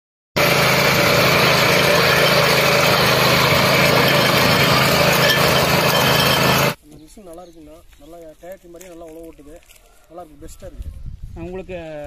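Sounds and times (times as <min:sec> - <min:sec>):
power weeder engine running: 0:00.4 - 0:06.8
tines tilling dry soil: 0:00.4 - 0:06.8, 0:08.1 - 0:10.0.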